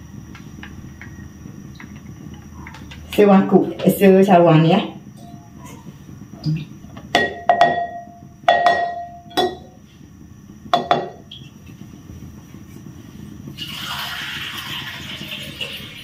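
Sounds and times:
cup clinking on glass bowl: 7.2 - 9.8.

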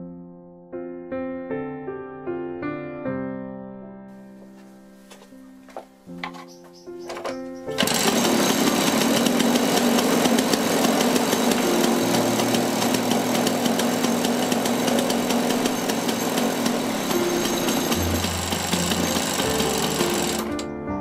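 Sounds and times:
single-cylinder engine running: 7.0 - 20.6.

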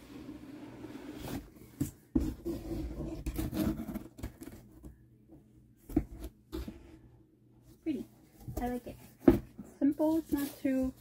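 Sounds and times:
cardboard scraping and rubbing: 0.0 - 4.7, 8.6 - 11.0.

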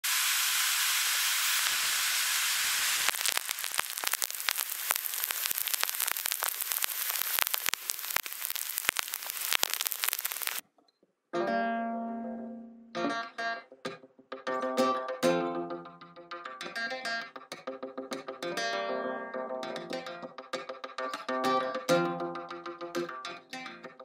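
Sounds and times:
rain falling on pavement: 0.8 - 10.6.

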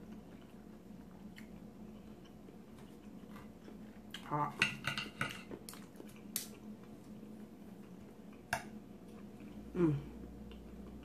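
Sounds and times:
person humming: 9.7 - 10.2.

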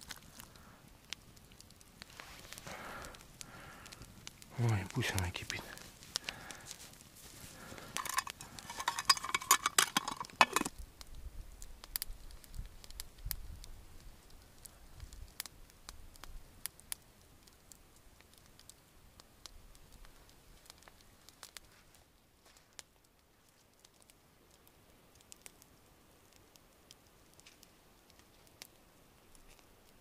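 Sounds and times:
campfire crackles: 0.0 - 30.0
mess tin rattling and clicking: 7.8 - 10.7.

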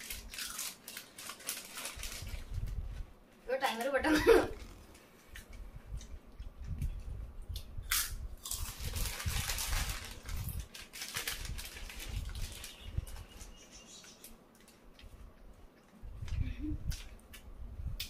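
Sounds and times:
potato chips crunching: 0.0 - 2.5, 7.9 - 12.8
foil packet crinkling: 0.0 - 2.8, 8.4 - 13.6.

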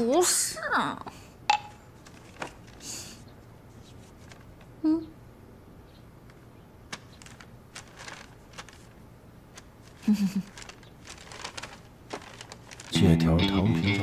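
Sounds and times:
paper rustling and crinkling: 2.0 - 4.7, 6.9 - 14.0.

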